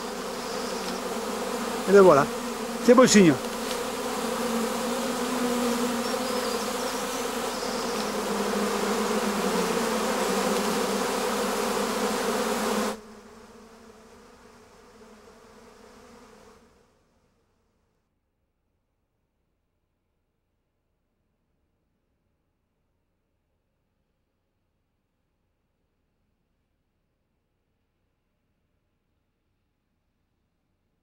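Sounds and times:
honeybees buzzing: 0:00.0 - 0:17.0.

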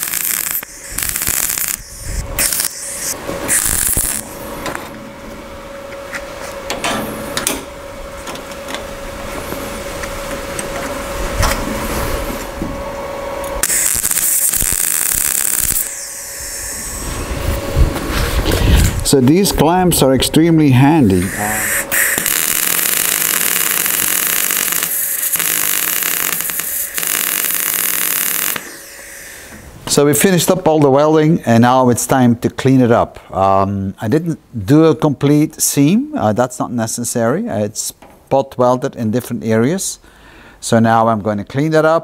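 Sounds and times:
welder arc crackling: 0:00.0 - 0:04.7, 0:13.5 - 0:17.6, 0:21.0 - 0:30.3
steady machine hum: 0:00.0 - 0:32.5.

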